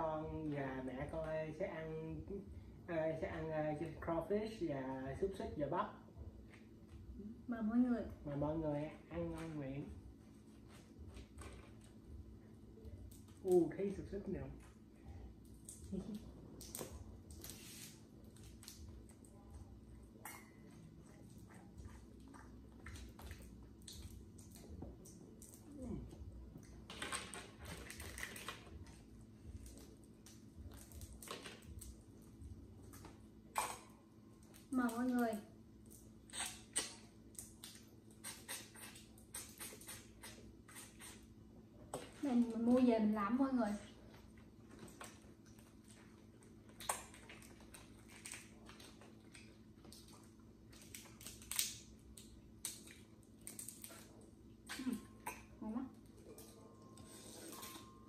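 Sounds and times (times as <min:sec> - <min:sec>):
crawfish shells cracking: 0:50.7 - 0:54.1.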